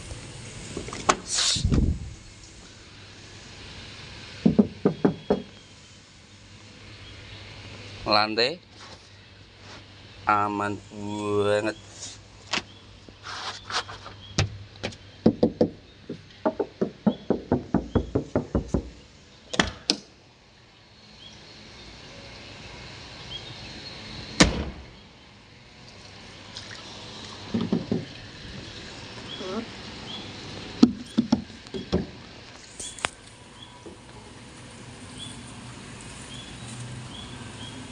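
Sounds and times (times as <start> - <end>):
sharp knocks and clicks: 4.4 - 5.5, 14.4 - 20.1, 27.5 - 28.1.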